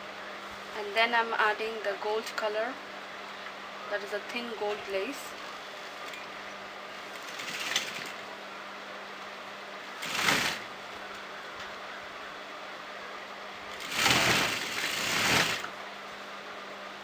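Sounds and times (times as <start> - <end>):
sewing machine stitching: 7.3 - 8.2, 10.0 - 10.7, 13.7 - 15.7.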